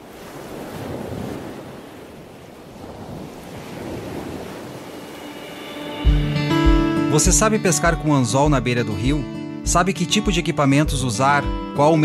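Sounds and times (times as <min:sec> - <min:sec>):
waves washing: 0:00.0 - 0:08.4.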